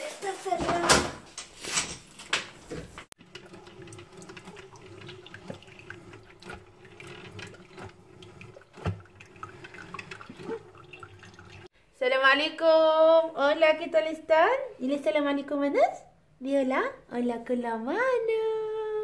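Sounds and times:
coffee trickling into mug: 0:02.0 - 0:11.7
coffee maker humming: 0:02.4 - 0:11.7.

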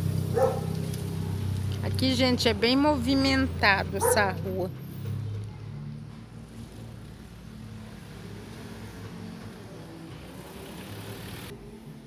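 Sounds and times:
car engine hum: 0:00.0 - 0:05.4
road noise: 0:00.0 - 0:12.0.

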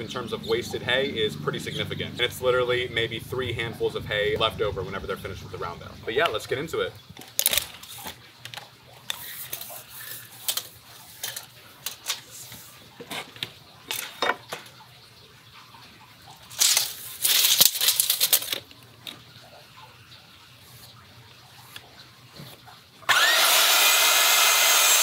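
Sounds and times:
tools clicking and knocking on wood: 0:13.0 - 0:14.8
small metallic rattles: 0:16.5 - 0:19.2.

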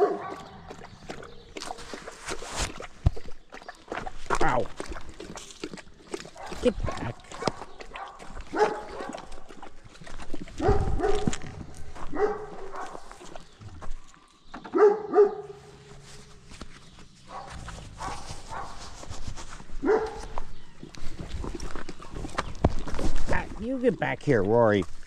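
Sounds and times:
dog barking and yipping: 0:00.0 - 0:00.5, 0:06.4 - 0:09.3, 0:10.5 - 0:11.4, 0:12.0 - 0:13.2, 0:14.7 - 0:15.7, 0:17.3 - 0:19.1, 0:19.8 - 0:20.5.

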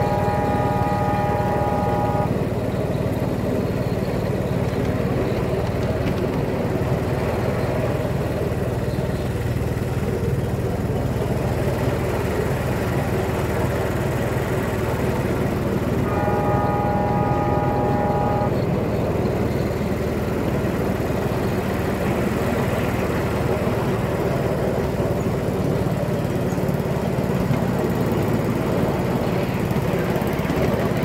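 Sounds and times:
train horn: 0:00.0 - 0:02.6, 0:15.3 - 0:19.6
small locomotive engine running: 0:00.0 - 0:31.0.

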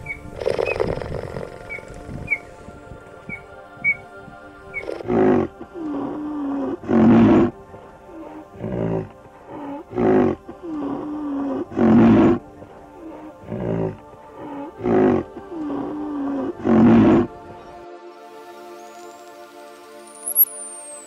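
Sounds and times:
soft background music: 0:00.0 - 0:21.0
big cat roaring: 0:04.8 - 0:17.4.

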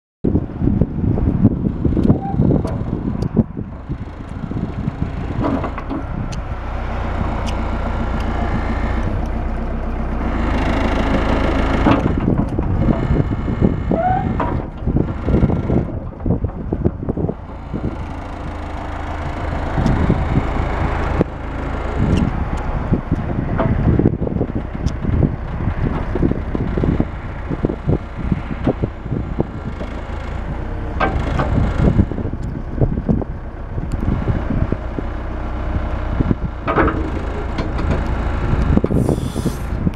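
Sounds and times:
wind buffeting microphone: 0:00.2 - 0:39.9
excavator diesel engine: 0:00.3 - 0:39.9
hydraulics: 0:00.3 - 0:39.9.

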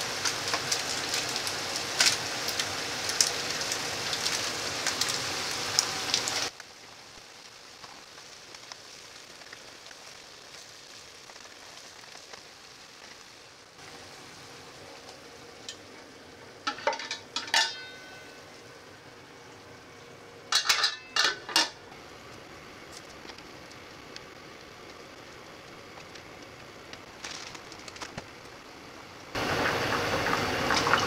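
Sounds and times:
broth simmering: 0:00.0 - 0:31.0
vegetables sizzling in oil: 0:00.0 - 0:31.0
metallic clinks of cookware: 0:16.7 - 0:18.3, 0:20.5 - 0:21.7.

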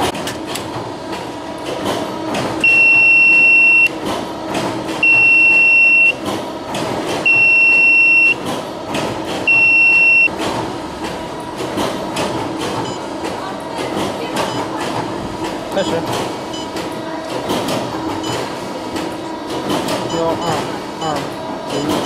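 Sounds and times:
workshop machinery running: 0:00.0 - 0:22.0
high steady buzzer beeps: 0:02.6 - 0:04.0, 0:05.0 - 0:06.2, 0:07.2 - 0:08.4, 0:09.5 - 0:10.3, 0:12.8 - 0:13.1, 0:16.5 - 0:16.8, 0:20.0 - 0:22.0.

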